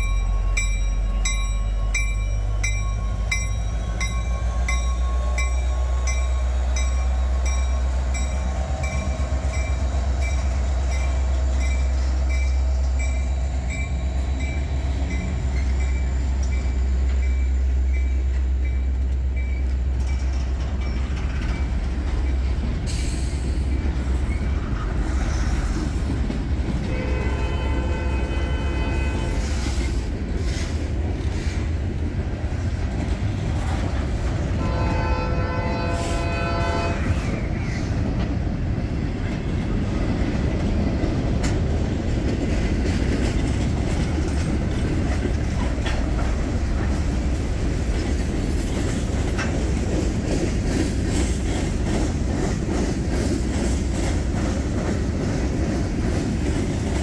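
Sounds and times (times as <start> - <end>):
train horn blasts: 0.0 - 8.1, 26.8 - 29.9, 34.5 - 37.5
train wheel clatter: 0.0 - 57.0.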